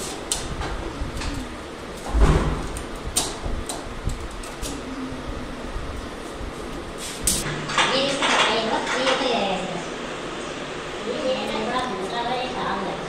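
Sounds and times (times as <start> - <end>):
heavy thump: 2.1 - 2.7.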